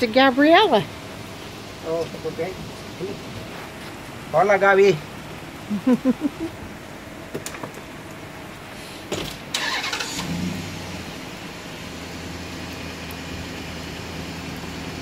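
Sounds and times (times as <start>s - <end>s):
thump: 9.1s - 9.4s
car engine starting and idling: 9.1s - 15.0s.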